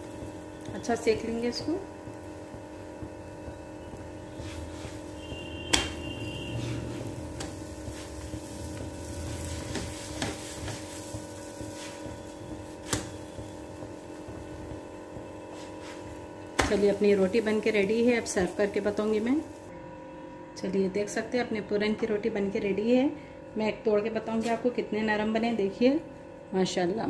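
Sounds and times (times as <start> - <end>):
steady hum: 0.0 - 27.0.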